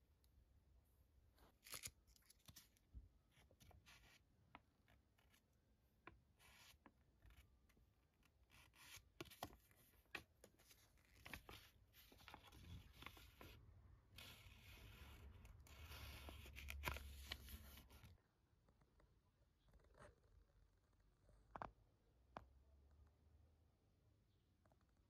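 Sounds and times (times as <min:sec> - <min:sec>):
paper leaflet rustling and crinkling: 0:08.2 - 0:13.6.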